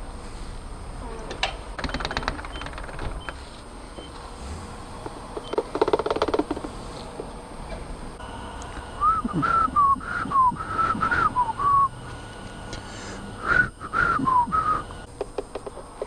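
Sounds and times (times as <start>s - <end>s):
person whistling a tune: 9.0s - 11.9s, 13.4s - 14.9s.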